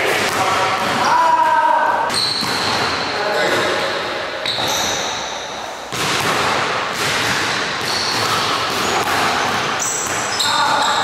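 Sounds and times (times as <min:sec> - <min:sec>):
sneaker squeaks: 0:01.0 - 0:05.9, 0:07.3 - 0:11.0.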